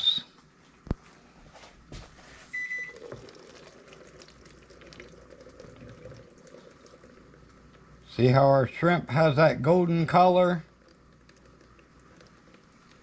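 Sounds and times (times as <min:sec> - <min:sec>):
appliance electronic beep: 0:02.5 - 0:03.1
liquid trickling: 0:02.8 - 0:08.2, 0:10.0 - 0:13.0.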